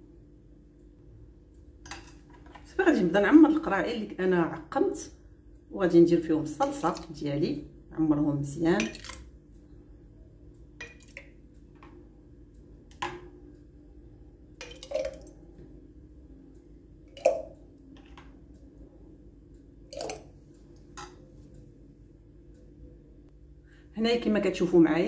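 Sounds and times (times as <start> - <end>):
faint steady hum: 0.0 - 25.0.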